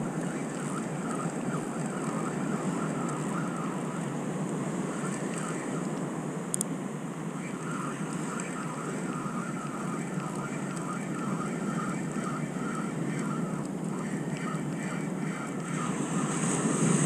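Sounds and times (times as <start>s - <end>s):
surf: 0.0s - 17.0s
wind on microphone: 7.2s - 17.0s.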